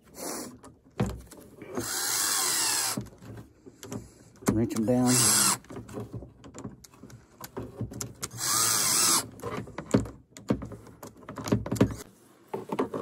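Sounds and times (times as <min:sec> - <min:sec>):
cordless drill spinning nut: 0:01.8 - 0:03.1, 0:04.7 - 0:05.7, 0:08.2 - 0:09.4.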